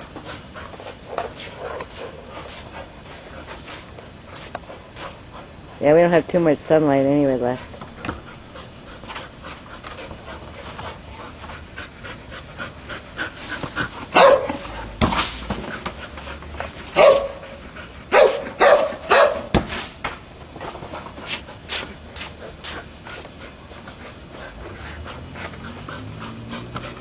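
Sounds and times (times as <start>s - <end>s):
dog barking: 14.1s - 14.7s, 17.0s - 17.4s, 18.1s - 19.5s.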